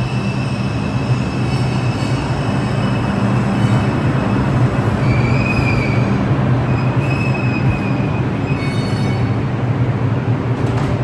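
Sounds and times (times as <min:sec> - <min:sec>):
subway train low hum: 0:00.0 - 0:11.0
high-pitched wheel squeals: 0:05.0 - 0:09.4.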